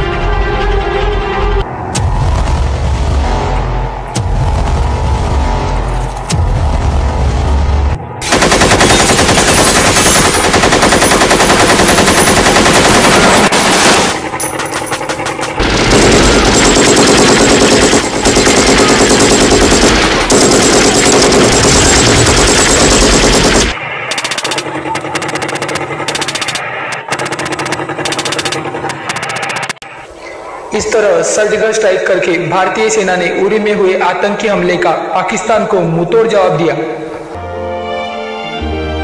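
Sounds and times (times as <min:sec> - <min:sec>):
machine-gun fire over loudspeakers: 0:08.2 - 0:14.3, 0:15.6 - 0:29.7.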